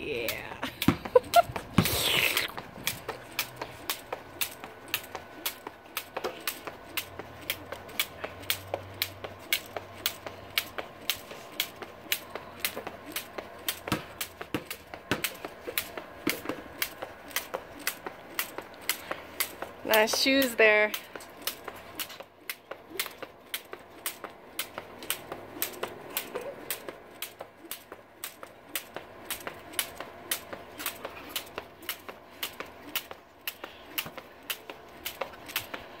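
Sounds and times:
jump rope slapping concrete: 0.1s - 36.0s
sneakers landing: 12.7s - 19.7s.

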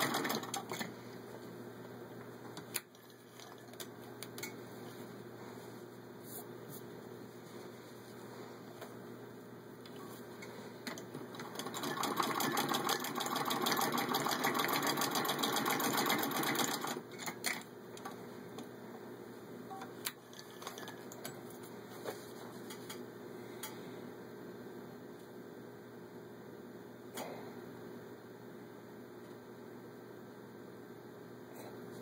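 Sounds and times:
sewing machine clatter: 0.0s - 0.9s, 10.9s - 17.6s.

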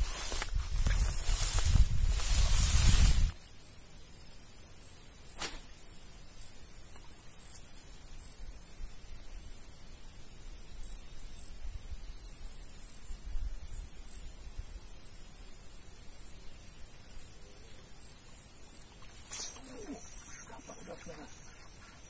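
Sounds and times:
wind rumble on microphone: 0.0s - 3.4s
insects droning: 0.0s - 22.0s.

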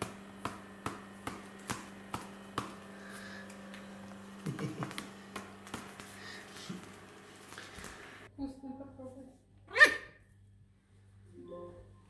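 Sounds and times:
hand tapping tiled floor: 0.0s - 8.1s
steady low hum: 0.0s - 12.0s.

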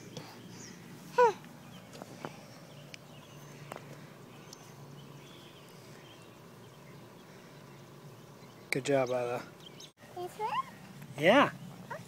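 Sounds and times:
faint outdoor background: 0.0s - 12.0s.

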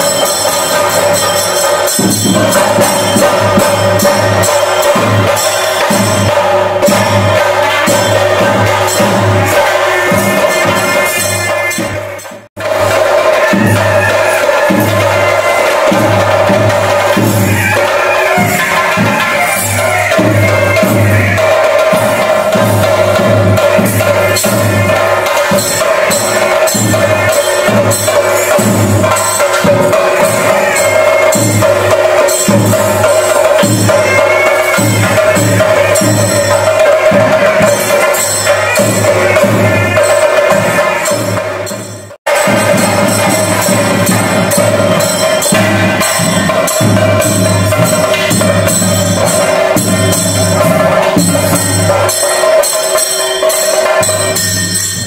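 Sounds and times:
drums beaten with sticks: 0.0s - 55.0s.

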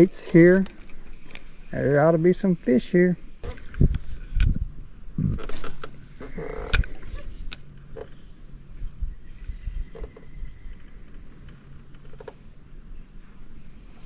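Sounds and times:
high-pitched insect drone: 0.0s - 14.0s
fishing reel cranking: 5.4s - 8.1s.

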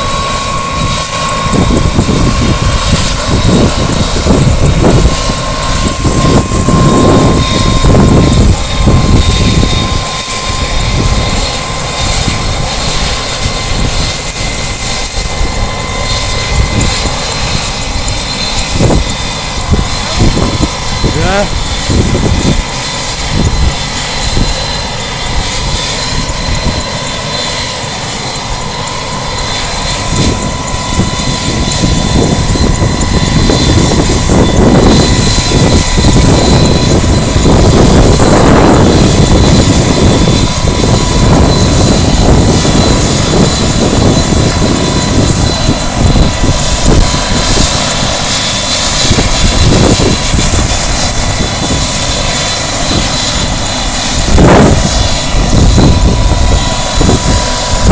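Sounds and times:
helicopter rotor and turbine whine: 0.0s - 57.9s.

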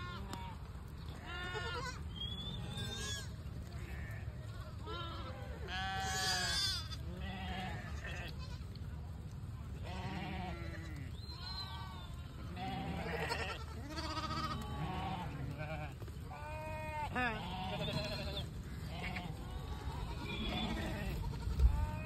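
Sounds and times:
goats bleating: 0.0s - 8.8s, 9.7s - 22.0s.

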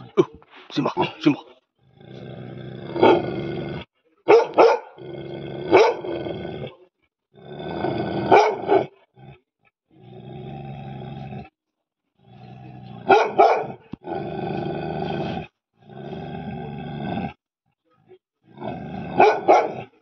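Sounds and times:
dog growling: 0.0s - 4.0s, 4.9s - 11.6s, 12.2s - 17.4s, 18.4s - 20.0s
dog barking: 3.0s - 3.3s, 4.2s - 5.0s, 5.7s - 6.2s, 8.2s - 9.0s, 13.0s - 13.9s, 19.1s - 20.0s.

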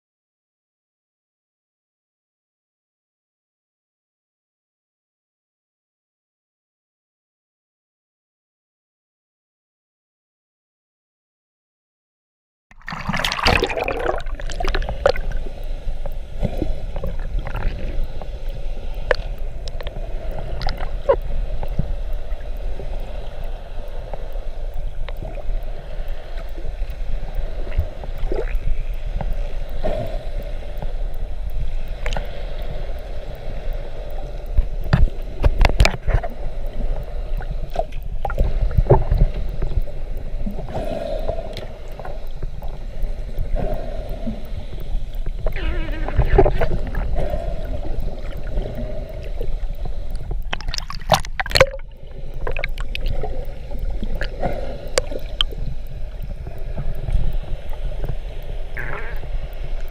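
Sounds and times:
underwater rushing and gurgling: 12.7s - 59.9s.

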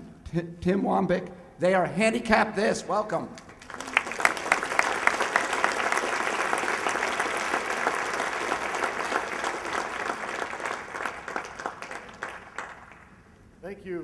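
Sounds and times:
audience applauding: 3.4s - 13.3s.

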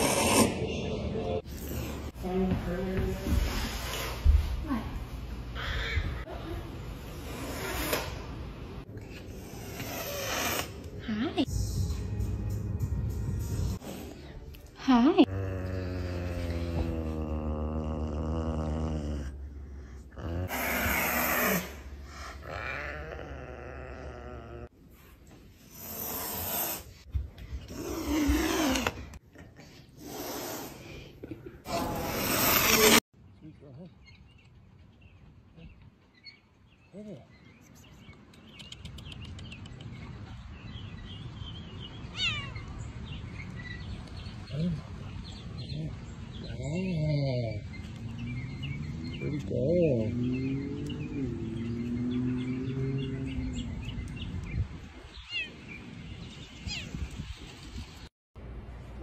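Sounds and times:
low wavering growl: 15.2s - 20.6s, 22.4s - 24.7s.

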